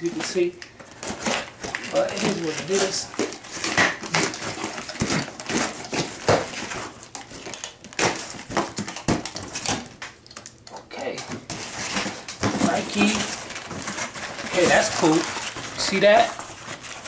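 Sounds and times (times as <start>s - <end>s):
cardboard box rustling and scraping: 11.4s - 17.0s.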